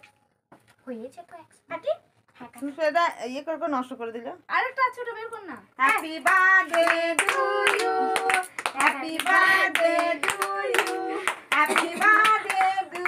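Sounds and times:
hands clapping along: 5.8s - 13.0s
voices singing together: 5.8s - 13.0s.

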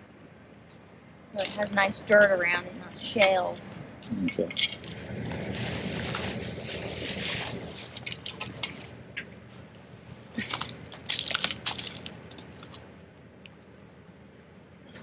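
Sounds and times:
shell and soil crunching: 4.0s - 12.8s.

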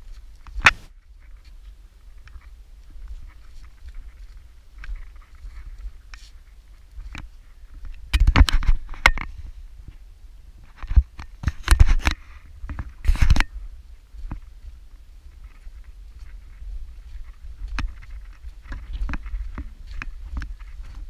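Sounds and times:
footsteps on rocky dirt trail: 0.0s - 21.0s
camera mount crunching and scraping: 7.9s - 9.3s, 10.7s - 13.5s
low steady rumble: 8.7s - 11.4s, 12.2s - 21.0s.

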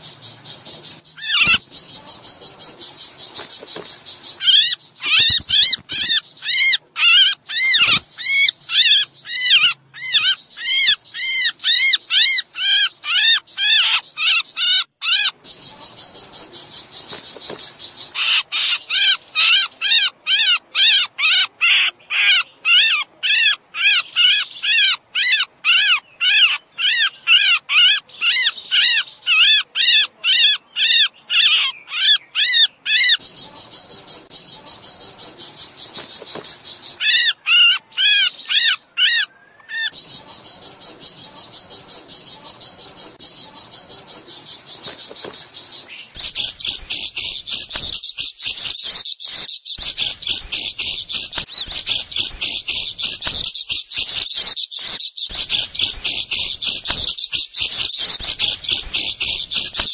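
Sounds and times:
high buzzing bird trill: 0.0s - 59.9s.

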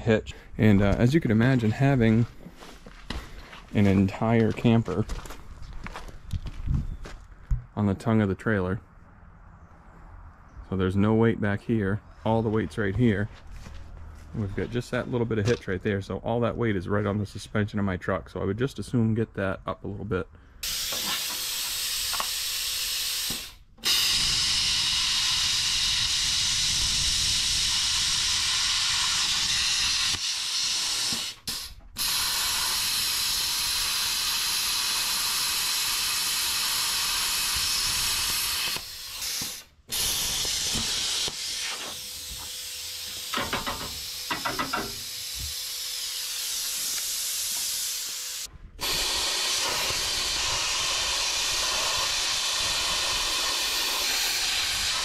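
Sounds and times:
plasma cutter hissing: 20.6s - 55.0s.

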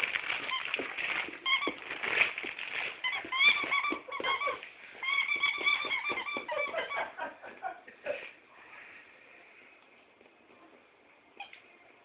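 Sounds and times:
rubber squeaky toy squeaking: 0.3s - 7.1s.

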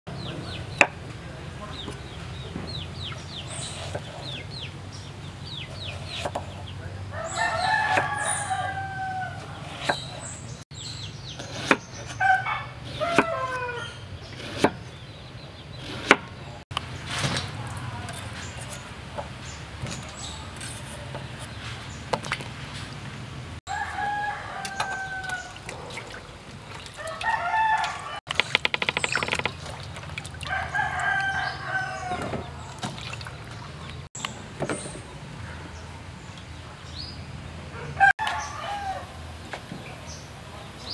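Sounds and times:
roosters crowing: 7.0s - 10.3s, 12.1s - 14.1s, 23.7s - 25.9s, 26.9s - 29.1s, 30.4s - 32.7s, 37.9s - 39.5s
knife chopping on wooden block: 11.4s - 11.8s, 14.4s - 14.8s, 15.8s - 16.3s, 28.3s - 29.6s.

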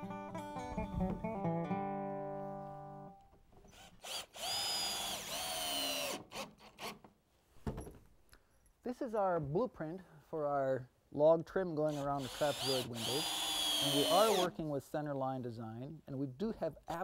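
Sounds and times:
acoustic guitar music: 0.0s - 3.4s
power drill running: 3.7s - 7.0s, 11.9s - 14.5s.

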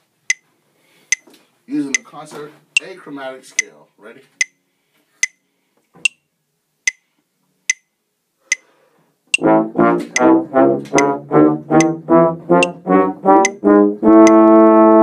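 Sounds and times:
metronome clicks: 1.1s - 1.3s, 1.9s - 2.2s, 2.8s - 3.8s, 4.4s - 4.6s, 5.2s - 5.4s, 6.8s - 7.1s, 7.7s - 8.7s, 9.3s - 15.0s
trombone and tuba playing scale: 9.4s - 15.0s.

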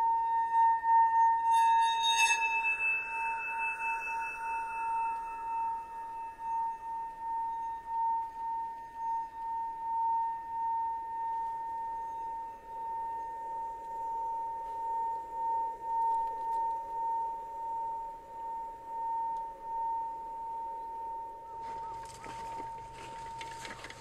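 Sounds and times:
faint higher tones: 0.0s - 24.0s
sustained high ringing tone: 0.0s - 24.0s.

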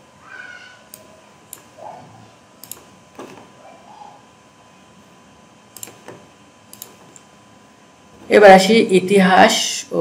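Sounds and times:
sharp clicks: 2.6s - 2.9s, 5.7s - 7.3s.

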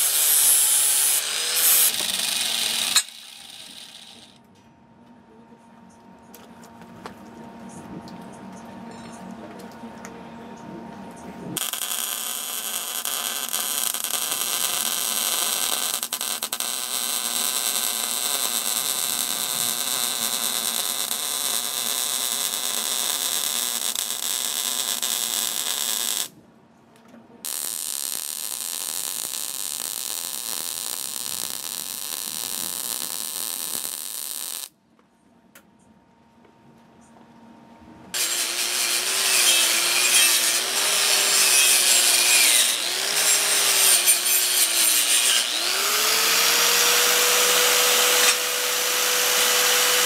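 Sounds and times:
arc welding hiss: 11.6s - 26.3s, 27.5s - 34.7s.

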